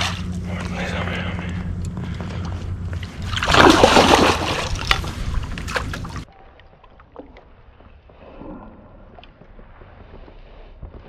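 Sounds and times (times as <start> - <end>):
steady low rumble: 0.0 - 6.3
fish thrashing and splashing: 3.0 - 6.3.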